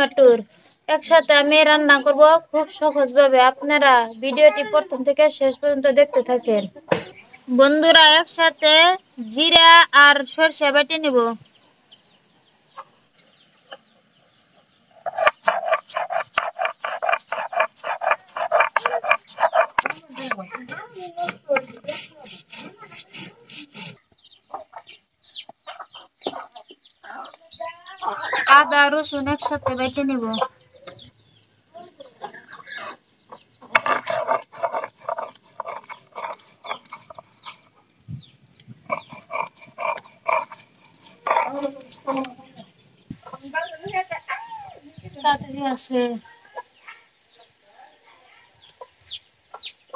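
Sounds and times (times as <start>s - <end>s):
chickens clucking: 2.8s - 7.5s, 11.4s - 49.9s
stone roller grinding seeds: 15.0s - 24.2s, 33.7s - 37.8s, 38.8s - 42.4s.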